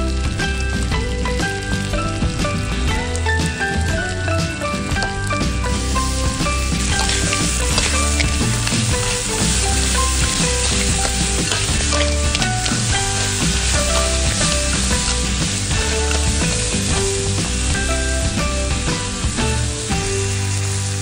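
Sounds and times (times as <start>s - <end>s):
background music: 0.0s - 21.0s
crabs sizzling in hot oil: 0.0s - 21.0s
metal spatula scraping wok: 5.9s - 18.0s.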